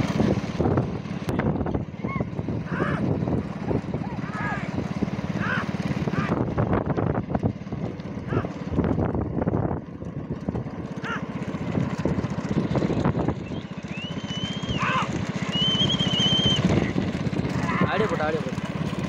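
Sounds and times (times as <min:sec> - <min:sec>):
motorcycle engine running: 0:00.0 - 0:19.0
other motorcycles: 0:00.0 - 0:19.0
shrill wavering whistle: 0:13.4 - 0:16.7.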